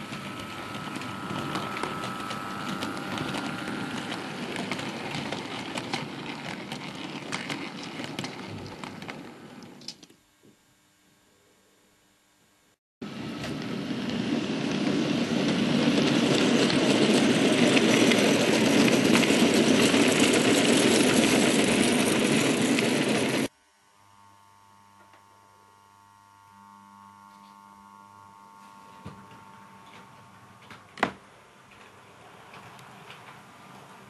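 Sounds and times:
model train rolling on track: 0.0s - 10.0s, 13.1s - 23.5s, 29.3s - 34.0s
faint low motor hum: 0.0s - 14.4s, 23.5s - 34.0s.

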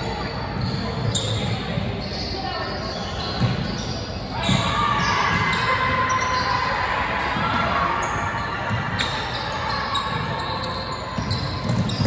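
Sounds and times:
basketball bouncing on wooden court: 3.2s - 5.8s, 8.6s - 12.0s.

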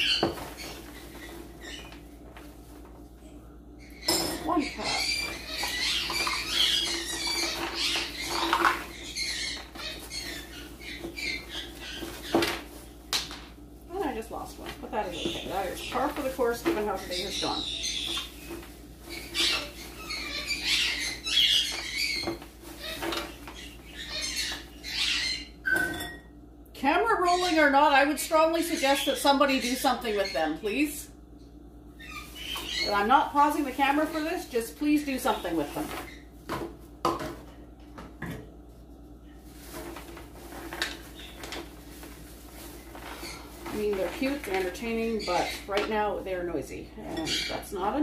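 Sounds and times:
parrots squawking and chirping: 0.0s - 2.8s, 3.8s - 13.5s, 14.1s - 26.2s, 27.2s - 31.1s, 32.0s - 36.6s, 39.5s - 46.3s, 47.0s - 48.0s
utensils clattering: 4.0s - 12.8s.

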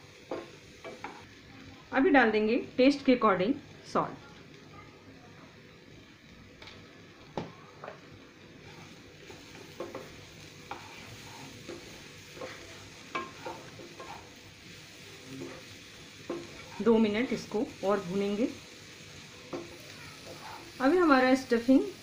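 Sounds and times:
faint frying sizzle: 0.0s - 22.0s
spatula scraping a frying pan: 8.6s - 14.4s, 15.2s - 17.0s, 19.5s - 20.8s.

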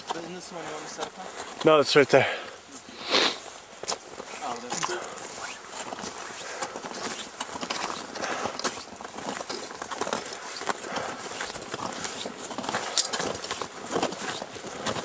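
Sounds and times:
footsteps on snow and ice: 0.0s - 15.0s.

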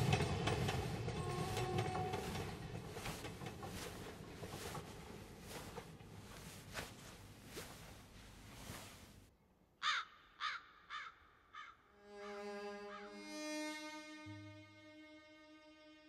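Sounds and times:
train passing: 0.0s - 9.3s
wheels clicking over rail joints: 0.0s - 9.3s
crow cawing: 9.8s - 13.1s.

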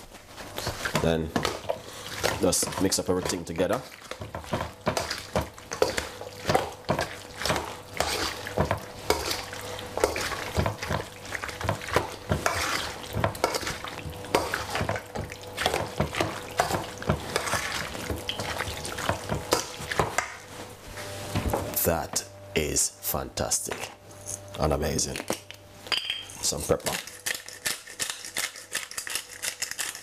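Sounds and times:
wet squelching: 0.6s - 20.0s
metal spoon clinking in metal bowl: 25.9s - 26.4s.

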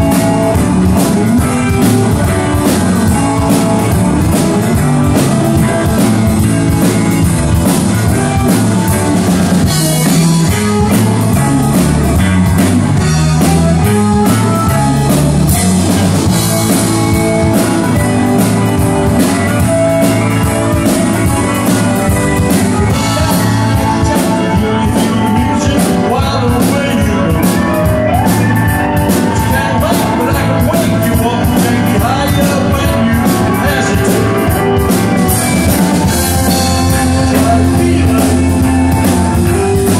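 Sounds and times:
rock band playing live: 0.0s - 39.9s
person singing: 22.4s - 39.9s.

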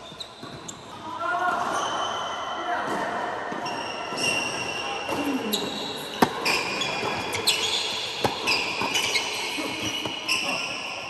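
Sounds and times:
shoe squeaks: 0.0s - 1.1s, 1.7s - 2.5s, 3.6s - 11.0s
racket hitting tennis ball: 6.2s - 7.6s, 8.2s - 9.1s
tennis ball bounces: 6.2s - 7.6s.

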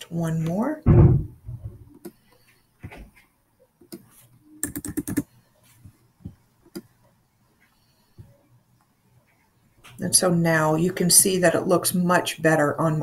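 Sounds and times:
keyboard keystrokes: 4.6s - 5.2s.

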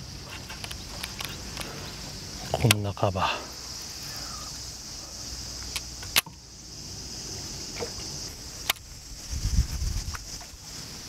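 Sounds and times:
cicada chorus: 0.0s - 11.0s
sharp clicks: 2.5s - 2.9s, 5.6s - 6.4s.

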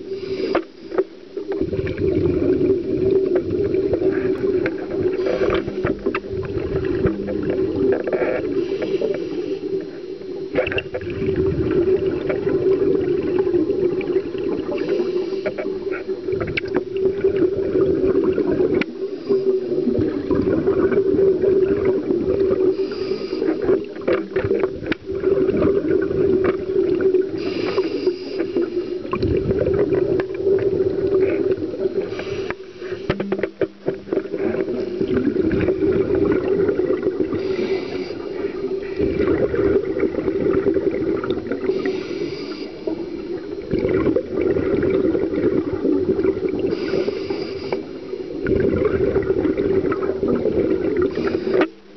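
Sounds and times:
regulator inhale hiss: 0.0s - 1.5s, 4.0s - 6.3s, 8.0s - 10.6s, 14.3s - 16.2s, 18.8s - 20.2s, 22.5s - 24.7s, 27.2s - 29.2s, 31.2s - 35.5s, 37.2s - 39.2s, 41.5s - 43.7s, 46.6s - 48.5s, 51.0s - 51.9s
steady hum: 0.0s - 51.9s
bubbling exhalations underwater: 1.5s - 8.7s, 10.5s - 18.9s, 19.6s - 22.9s, 23.8s - 27.6s, 29.0s - 32.4s, 33.1s - 42.1s, 43.4s - 47.0s, 48.3s - 51.4s.

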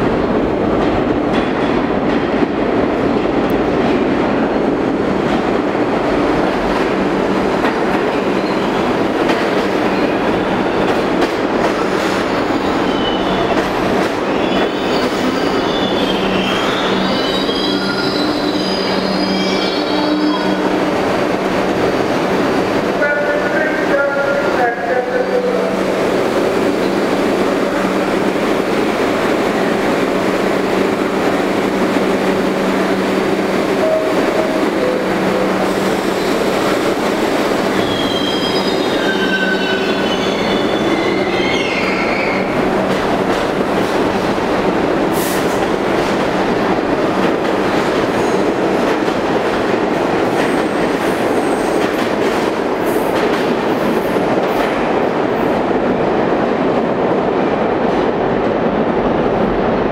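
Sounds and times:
train clacking over rail joints: 0.0s - 4.1s
subway train humming and pulling out: 0.0s - 59.9s
train wheels squealing: 12.7s - 13.6s, 14.3s - 20.6s, 37.7s - 42.6s.

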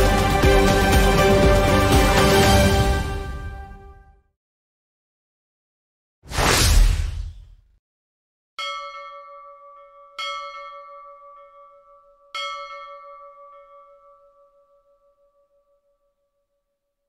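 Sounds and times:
whoosh: 6.3s - 7.7s
bell ringing: 8.6s - 16.0s.

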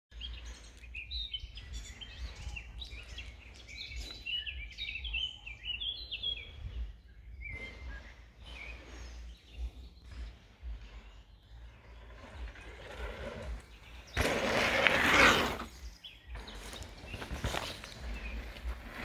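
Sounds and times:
songbirds singing: 0.1s - 19.0s.

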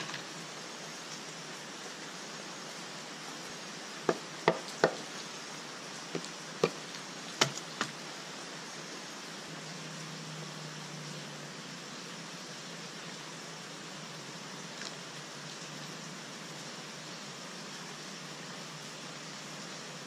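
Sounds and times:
steady hiss: 0.0s - 20.0s
wooden sticks knocking on pile: 6.2s - 6.8s.

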